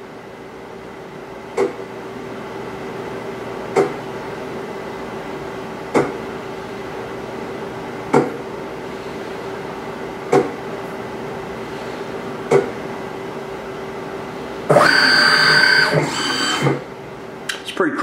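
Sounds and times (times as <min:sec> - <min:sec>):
steady machine hum: 0:00.0 - 0:18.0
lathe motor short bursts: 0:14.7 - 0:16.9.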